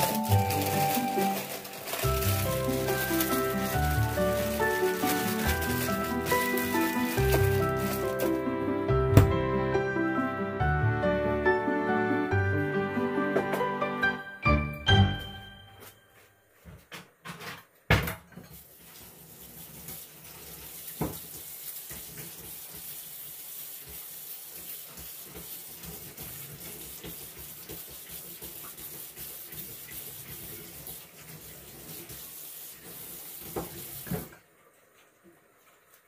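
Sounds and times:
tap water running into sink: 0.0s - 8.4s, 18.4s - 36.0s.

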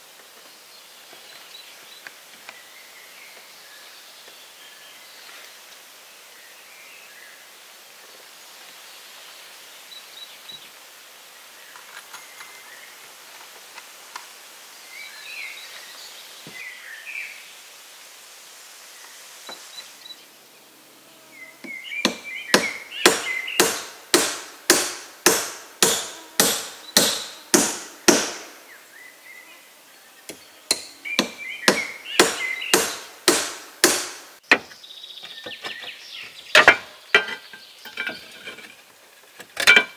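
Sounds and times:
sharp hand tool blows: 22.1s - 28.7s, 30.7s - 34.4s.

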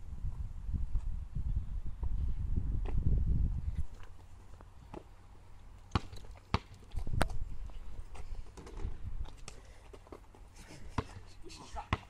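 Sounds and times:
basketball bouncing on asphalt: 4.2s - 7.4s, 8.1s - 11.2s, 11.8s - 12.0s.

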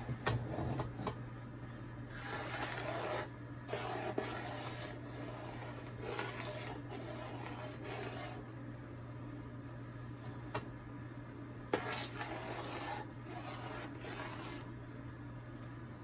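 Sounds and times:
metal spoon scraping a pot: 2.1s - 8.4s, 11.8s - 14.7s.

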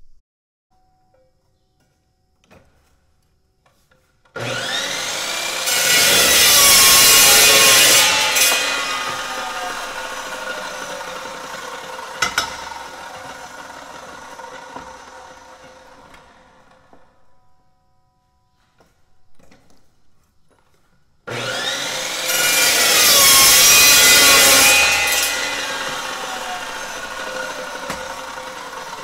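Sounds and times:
metal chop saw cutting steel: 4.4s - 16.6s, 21.3s - 29.0s
saw blade whine coasting down: 4.4s - 17.1s, 21.3s - 29.0s.

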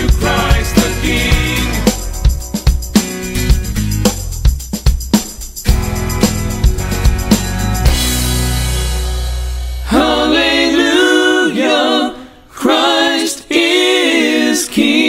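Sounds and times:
voices singing in close harmony: 0.0s - 2.2s, 9.9s - 15.0s.

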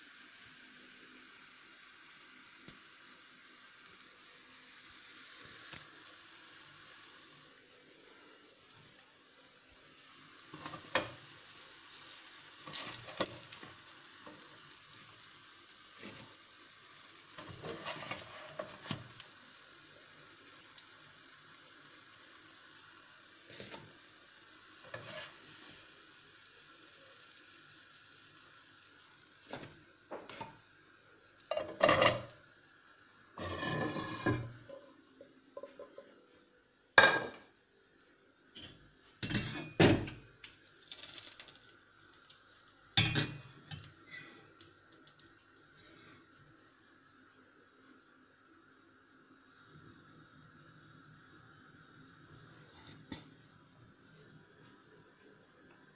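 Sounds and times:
pancakes sizzling in a pan: 0.0s - 55.9s
spatula scraping and tapping pan: 10.5s - 11.2s, 17.4s - 19.1s, 24.9s - 25.4s, 29.5s - 30.6s, 31.5s - 32.4s, 33.4s - 34.9s, 35.6s - 36.2s
utensils and dishes clattering: 31.5s - 32.3s.

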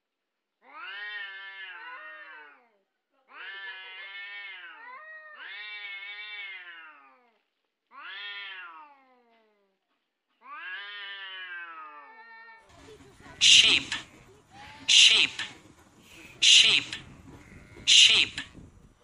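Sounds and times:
cat yowling: 0.7s - 2.6s, 3.3s - 7.2s, 8.0s - 9.0s, 10.5s - 12.6s.

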